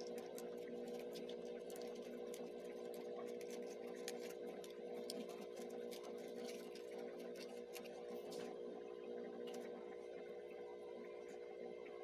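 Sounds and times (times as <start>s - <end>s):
paperboard pieces clicking and crinkling: 0.0s - 8.5s
background hum: 0.0s - 12.0s.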